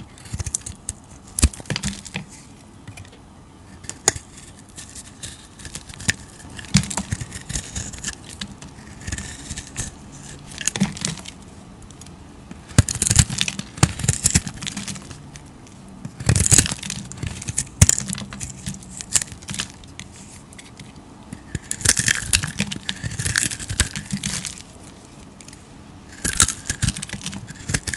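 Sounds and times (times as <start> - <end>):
knife blade shaving soap: 0.0 - 2.4, 3.7 - 11.4, 16.0 - 24.7, 26.1 - 27.9.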